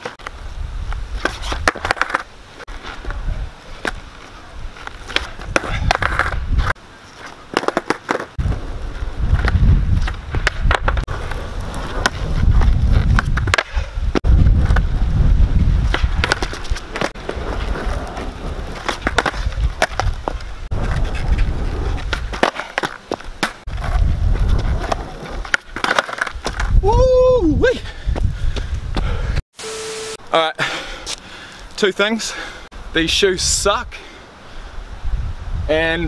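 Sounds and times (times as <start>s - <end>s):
skateboard rolling on asphalt: 0.0s - 26.8s
skateboard clacking and landing: 1.2s - 2.3s, 5.0s - 6.8s, 7.5s - 8.4s, 9.3s - 13.8s, 15.9s - 21.3s, 21.9s - 24.0s, 24.7s - 26.8s.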